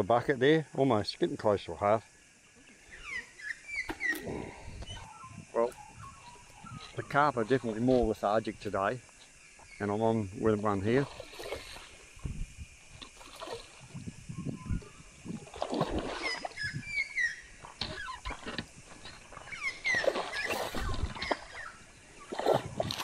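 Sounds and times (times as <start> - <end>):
bird chirps: 2.8 - 7.3, 16.2 - 18.2
fish splashing in water: 11.0 - 12.1, 13.0 - 14.0, 15.4 - 16.8, 17.6 - 23.0.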